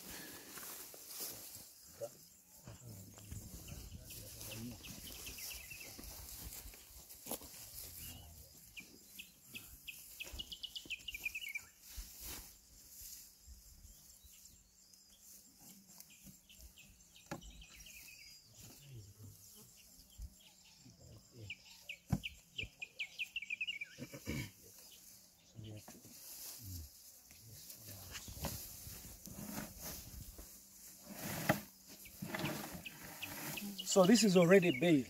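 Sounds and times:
dry hay rustling: 0.0 - 1.9, 3.4 - 14.4, 24.8 - 35.0.

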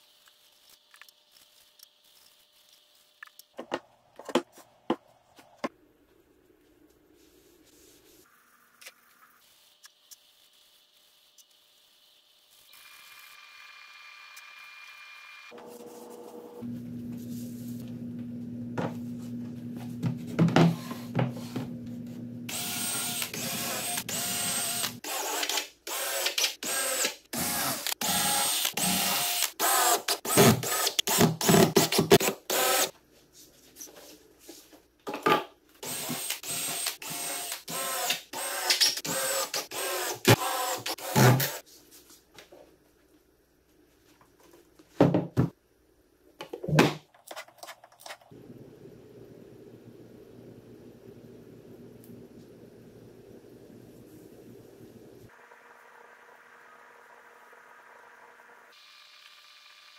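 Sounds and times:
power tool motor whirring: 22.5 - 31.6, 32.2 - 32.9, 35.8 - 41.6.

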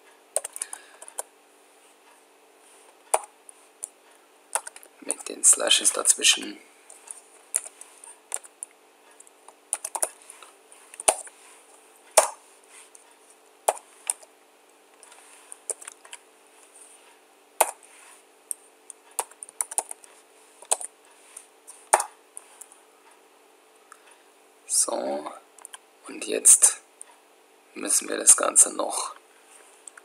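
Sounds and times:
faint steady hum: 0.0 - 30.0
typing on computer keyboard: 0.4 - 1.3, 4.6 - 4.9, 9.8 - 10.2, 15.6 - 16.2, 19.2 - 20.9.

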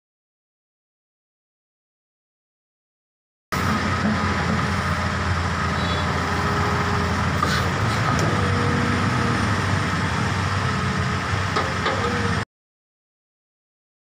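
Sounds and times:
excavator diesel engine running: 3.6 - 12.4.

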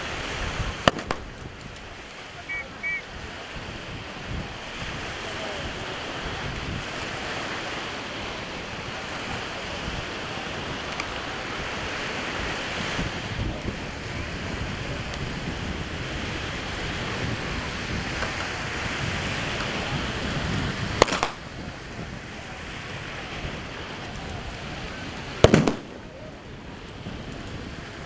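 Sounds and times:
wind and surf noise: 0.0 - 28.0
blank gunfire cracks: 0.8 - 1.4, 21.0 - 21.4, 25.4 - 26.1.

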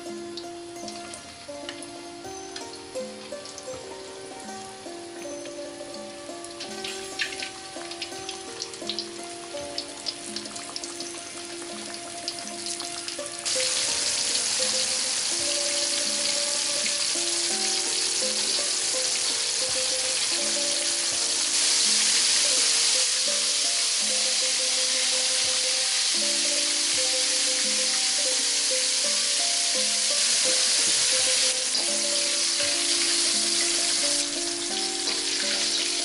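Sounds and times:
fish deep-frying in oil: 0.0 - 36.0.

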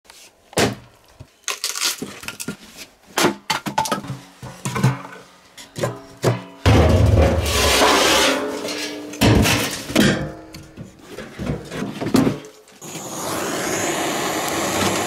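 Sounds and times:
firewood knocking on metal drum: 5.9 - 8.0.

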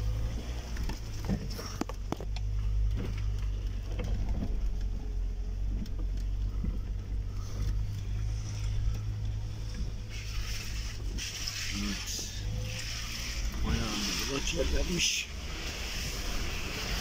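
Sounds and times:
vehicle engine droning: 0.0 - 17.0
vehicle knocks and rattles: 0.4 - 8.0.

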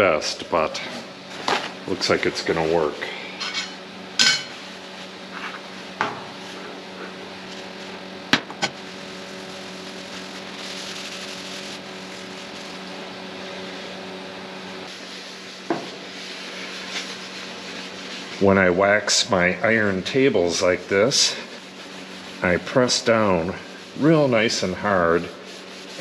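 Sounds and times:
steady low hum: 0.0 - 26.0
paper towel rubbing metal: 8.8 - 14.0, 14.8 - 26.0.

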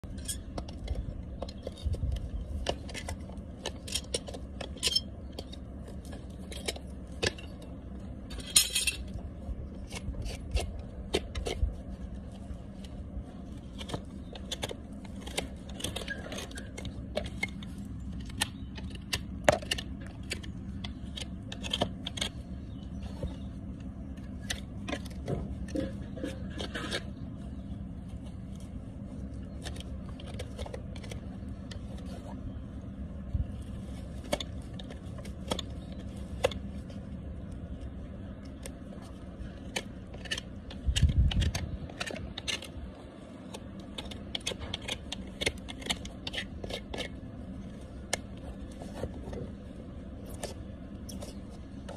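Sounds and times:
rasp and knife scraping hoof: 0.1 - 23.5, 24.1 - 32.3.

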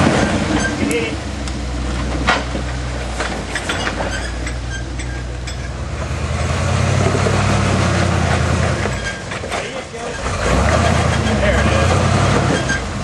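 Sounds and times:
engine running under load: 0.0 - 13.0.

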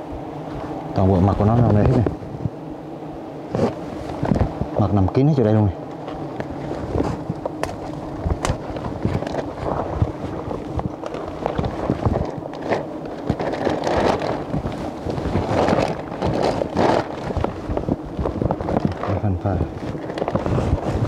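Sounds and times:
honeybees buzzing: 0.0 - 21.0
plastic sheeting rustling on microphone: 3.5 - 4.7, 6.0 - 21.0.

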